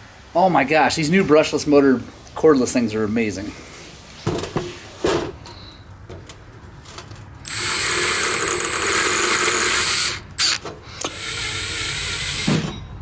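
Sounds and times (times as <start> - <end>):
cordless drill whining: 7.4 - 12.8.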